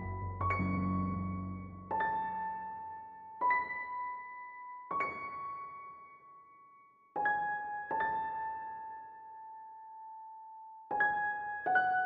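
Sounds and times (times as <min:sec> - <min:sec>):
slow piano notes: 0:00.0 - 0:06.5.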